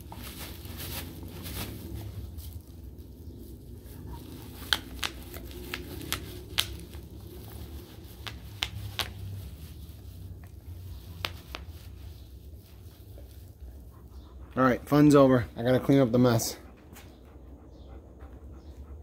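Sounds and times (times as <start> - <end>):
bubble wrap popping: 0.0 - 13.4
bubble wrap crinkling: 0.0 - 13.7.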